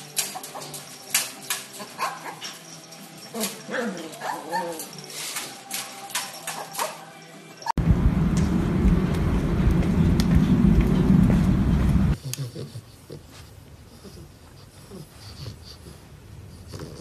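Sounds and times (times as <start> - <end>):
puppies yipping and whimpering: 0.0 - 7.2.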